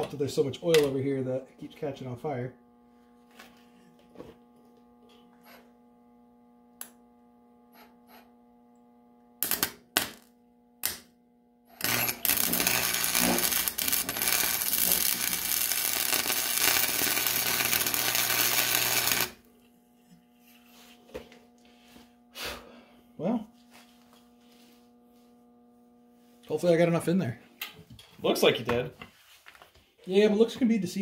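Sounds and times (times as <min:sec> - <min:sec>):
welder arc crackling: 0:06.7 - 0:11.1, 0:11.7 - 0:19.6.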